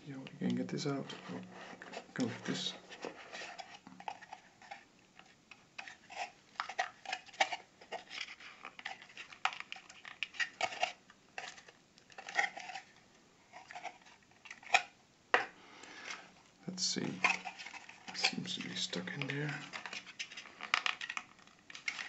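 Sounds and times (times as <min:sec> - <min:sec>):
cardboard insert sliding and scraping: 0:01.0 - 0:04.8.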